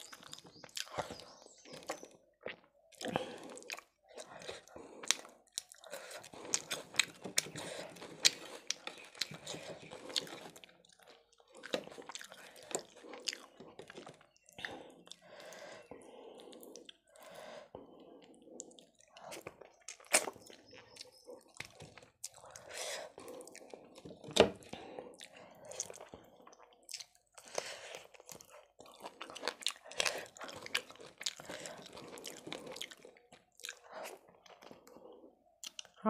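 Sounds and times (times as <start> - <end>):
close chewing and biting: 0.0 - 36.0
wet mouth clicks: 35.6 - 36.0.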